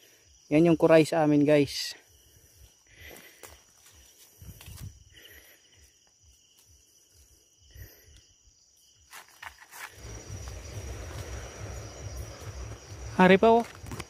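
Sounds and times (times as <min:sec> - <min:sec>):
night insects trilling: 0:00.0 - 0:14.0
camera handling rumble: 0:13.7 - 0:14.0.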